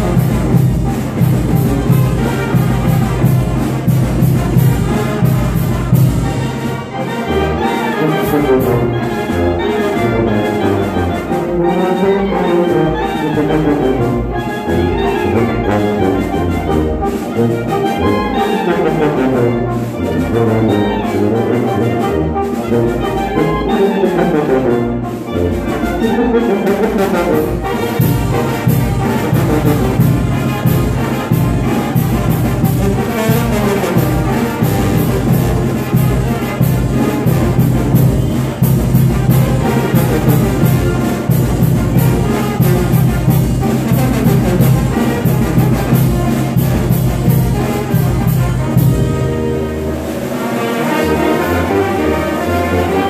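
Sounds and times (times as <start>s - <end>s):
brass band playing dance tune: 0.0s - 53.0s.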